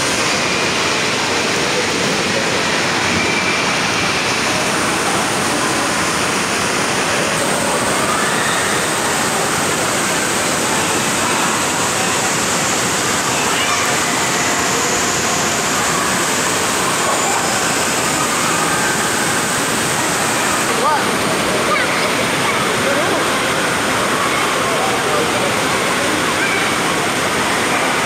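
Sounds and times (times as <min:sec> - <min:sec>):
water rushing and splashing: 0:00.0 - 0:28.0.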